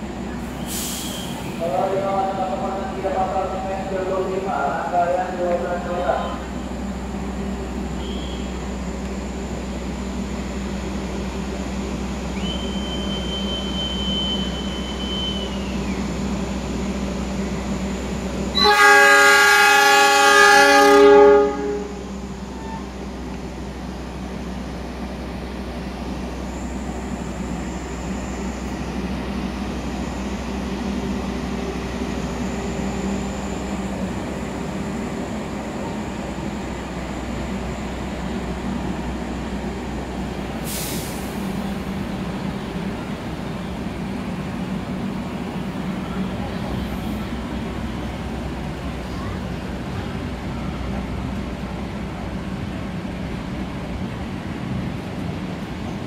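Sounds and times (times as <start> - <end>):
idling train hum: 0.0 - 56.0
shrill whistle tone: 8.0 - 8.5, 12.4 - 16.0
locomotive horn blast: 18.5 - 22.9.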